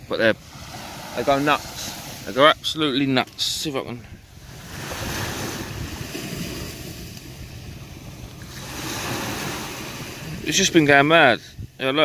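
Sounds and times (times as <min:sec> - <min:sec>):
small waves washing onto sand: 0:00.0 - 0:11.9
wind on microphone: 0:03.5 - 0:11.9.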